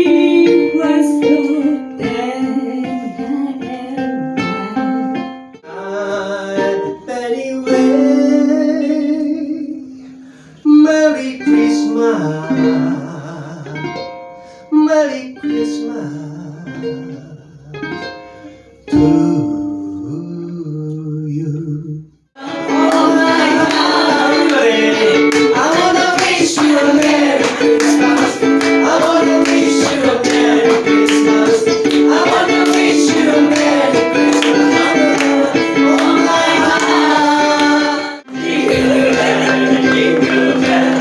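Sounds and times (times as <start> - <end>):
man singing: 0.0 - 3.8, 5.6 - 10.0, 10.6 - 14.0, 14.7 - 17.9, 18.9 - 37.8
woman singing: 0.0 - 8.5, 22.4 - 38.2
ukulele strumming: 0.0 - 9.4, 11.1 - 20.4, 22.4 - 41.0.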